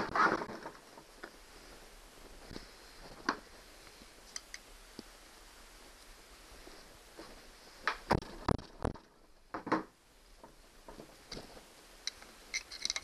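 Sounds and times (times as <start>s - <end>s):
faint clicks: 3.2s - 5.1s, 12.0s - 13.0s.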